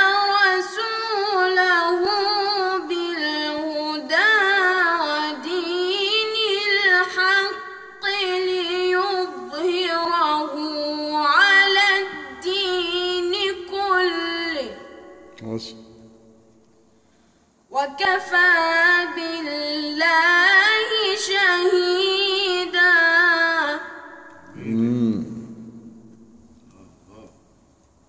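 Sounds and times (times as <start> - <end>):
boy reciting in melodic chant: 0.0 - 15.9, 17.7 - 25.6.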